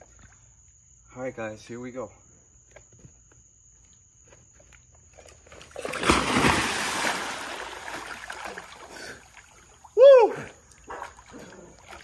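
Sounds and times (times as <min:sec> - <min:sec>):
water sloshing: 0:05.1 - 0:10.0
heavy splash into pool: 0:05.8 - 0:08.9.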